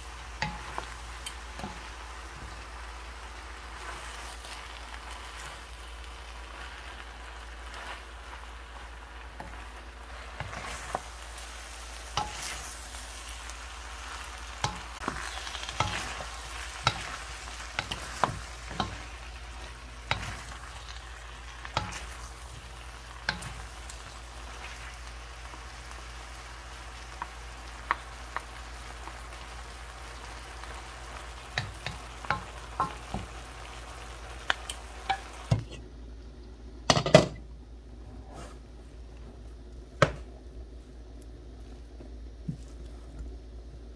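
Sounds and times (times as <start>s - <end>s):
food sizzling in a frying pan: 0.0s - 35.8s
spatula knocking and scraping pan: 0.3s - 2.6s, 12.1s - 12.6s, 14.6s - 21.0s, 21.6s - 24.2s, 31.5s - 33.4s.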